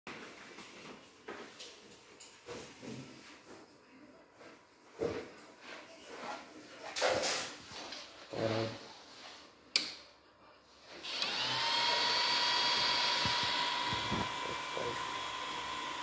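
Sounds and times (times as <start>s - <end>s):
cooling fans whirring: 11.0s - 16.0s
high whine: 12.7s - 16.0s.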